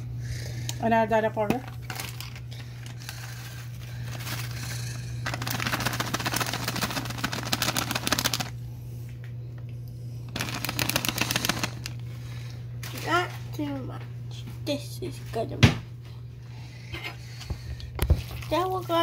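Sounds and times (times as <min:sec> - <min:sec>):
steady low hum: 0:00.0 - 0:19.0
spice packet crinkling and rattling: 0:01.8 - 0:08.6, 0:10.3 - 0:12.0.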